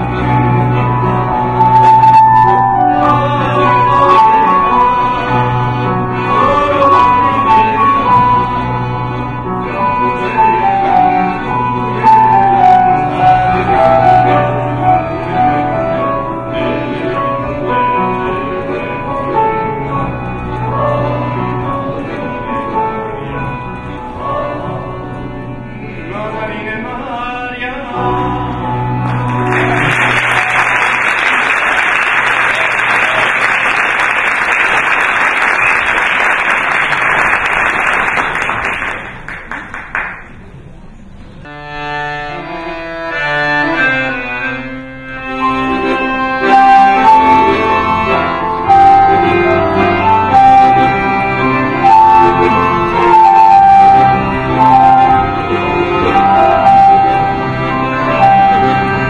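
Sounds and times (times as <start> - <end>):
piano accordion playing: 0.0 - 39.4, 40.6 - 59.0
piano playing: 0.0 - 39.4, 40.0 - 59.0
audience applauding: 29.0 - 40.4.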